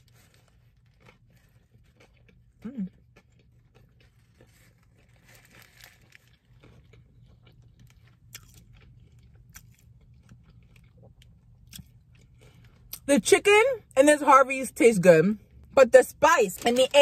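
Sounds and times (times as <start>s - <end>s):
faint chewing with soft crunching: 0.0s - 13.1s.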